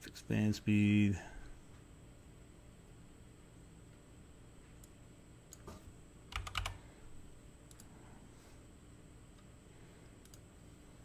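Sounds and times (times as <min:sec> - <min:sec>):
typing on a computer keyboard: 0:06.3 - 0:06.8.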